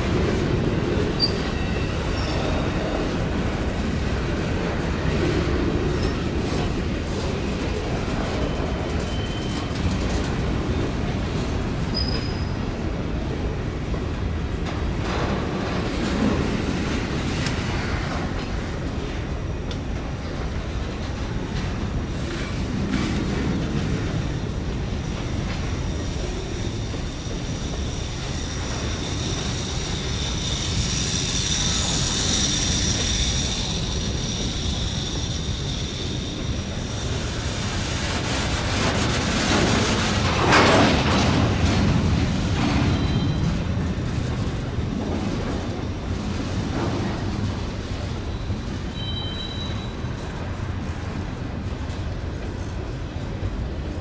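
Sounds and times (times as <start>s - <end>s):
train clatter: 0.0s - 54.0s
train rumbling past: 0.0s - 54.0s
wheels clicking on rails: 0.0s - 54.0s
metallic wheel squeal: 48.3s - 50.2s.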